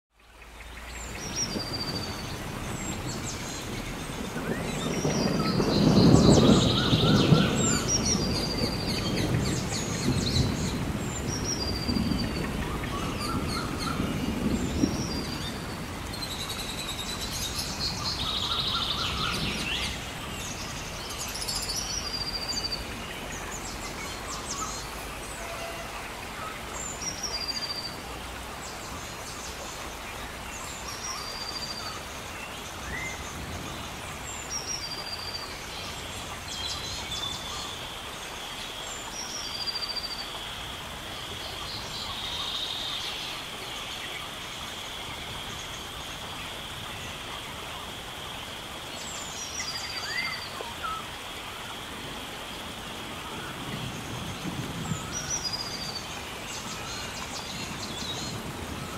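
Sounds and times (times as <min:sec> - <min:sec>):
bird calls and chirps: 0:00.2 - 0:28.0
steady hiss: 0:00.4 - 0:58.9.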